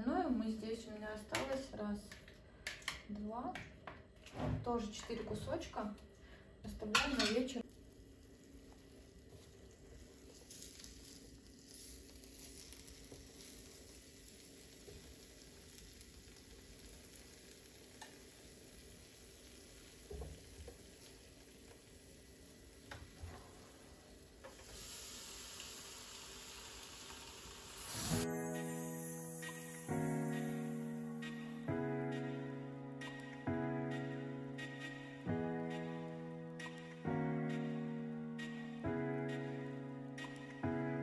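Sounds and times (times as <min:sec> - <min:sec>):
chicken sizzling on a grill: 0:07.6 - 0:31.2.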